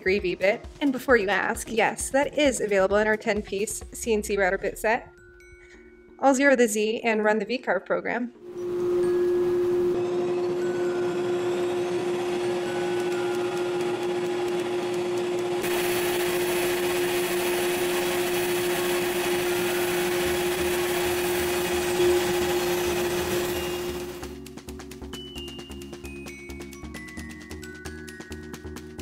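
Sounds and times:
router spindle whining and hissing: 0:08.5 - 0:24.3
router carving wood: 0:08.6 - 0:24.3.

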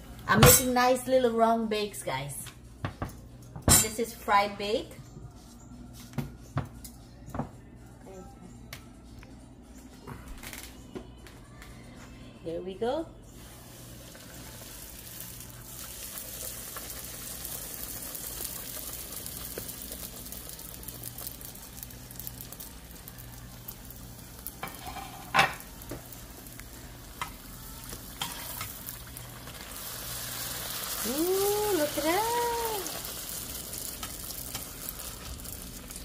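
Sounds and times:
dough sizzling in hot oil: 0:13.5 - 0:36.0.

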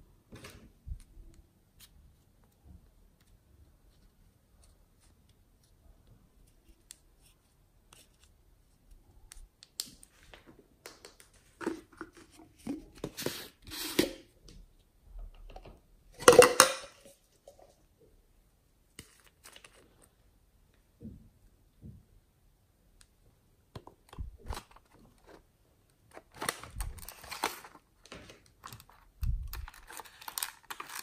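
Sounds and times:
plastic containers clicking and tapping: 0:15.3 - 0:17.0
containers clattering: 0:16.2 - 0:17.6.

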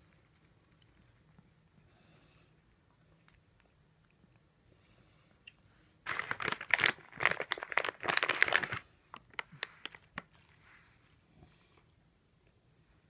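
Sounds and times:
plastic packet crinkling: 0:06.1 - 0:10.6.

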